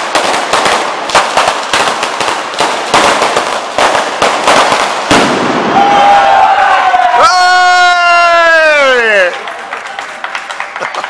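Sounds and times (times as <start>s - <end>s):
string of firecrackers cracking: 0.0s - 5.8s.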